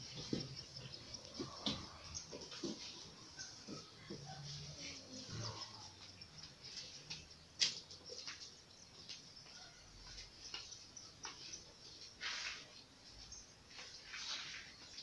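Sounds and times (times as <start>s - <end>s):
child footsteps on hard floor: 0.0s - 4.3s.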